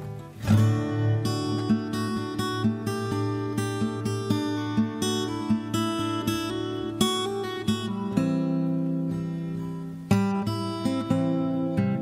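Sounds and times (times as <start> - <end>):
acoustic guitar chord strummed: 0.0 - 12.0.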